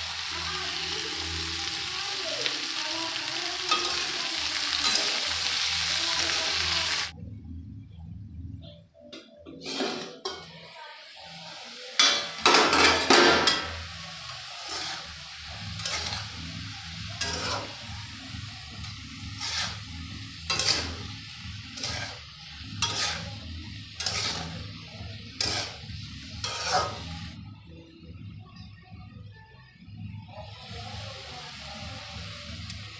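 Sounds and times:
food sizzling: 0.0 - 7.2, 9.6 - 27.6, 30.2 - 32.9
metal spatula scraping pan: 9.5 - 10.5, 14.6 - 16.4, 17.2 - 17.9, 18.8 - 24.7, 25.3 - 27.4.

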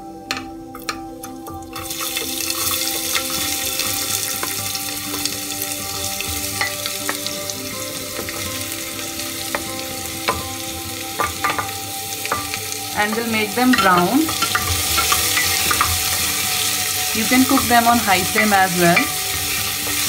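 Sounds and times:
onions sizzling in hot oil: 1.5 - 20.0.

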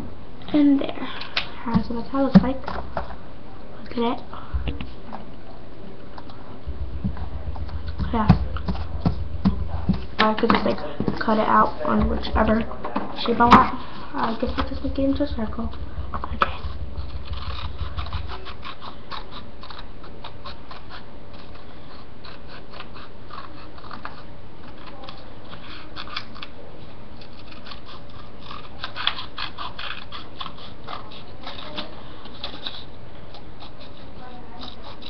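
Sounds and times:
scissors cutting paper: 16.3 - 26.6, 27.2 - 35.0.

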